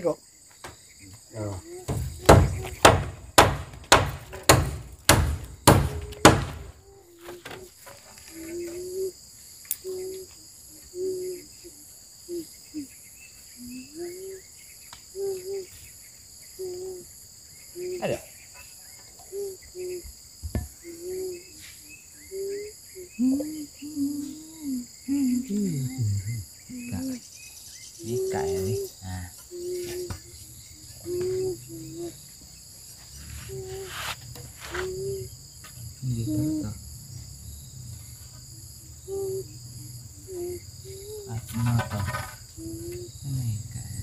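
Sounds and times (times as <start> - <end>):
insects droning: 0.0 - 44.0
hammer blows on wood: 1.8 - 6.8
short pitched calls: 17.7 - 18.7, 28.0 - 32.4, 33.0 - 44.0.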